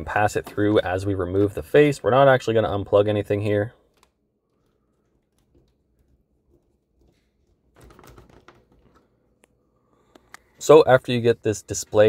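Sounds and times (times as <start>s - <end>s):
plastic cover clicking and rattling: 3.9s - 9.2s.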